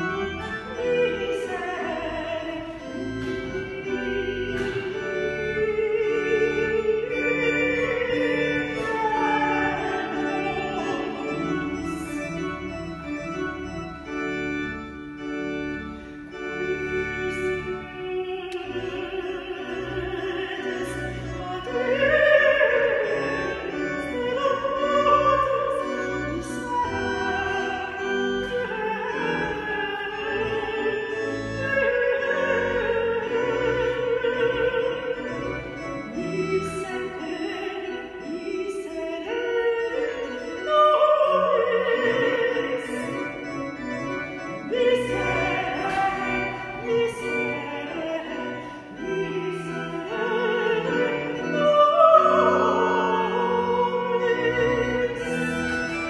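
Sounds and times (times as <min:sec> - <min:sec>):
church organ: 0:00.0 - 0:56.0
woman singing operatic style: 0:00.1 - 0:12.7, 0:16.6 - 0:43.5, 0:44.5 - 0:56.0.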